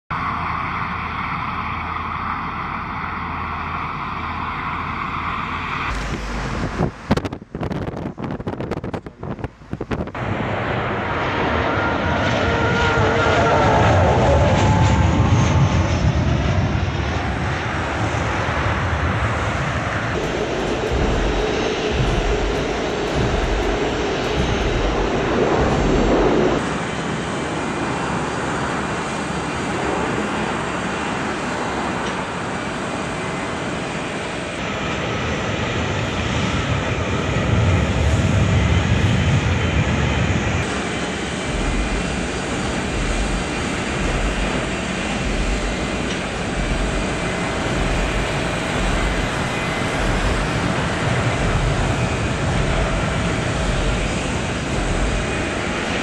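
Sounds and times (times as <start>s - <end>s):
jet aircraft engine noise: 0.1s - 56.0s.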